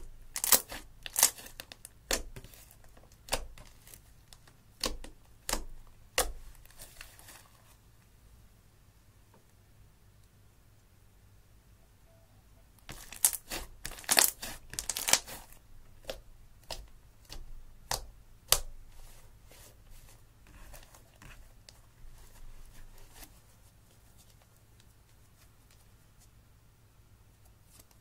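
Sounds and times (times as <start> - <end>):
slime squelching and popping: 12.9 - 18.7.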